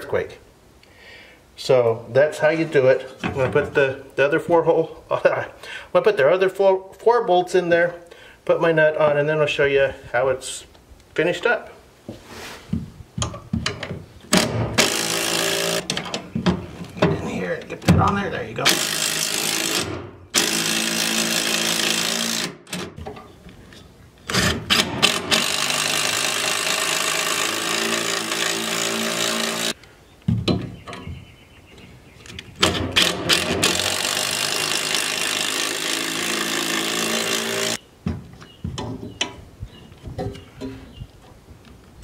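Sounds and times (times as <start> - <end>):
impact driver hammering screws: 14.3 - 16.0, 18.6 - 23.0, 24.3 - 29.8, 32.6 - 37.8.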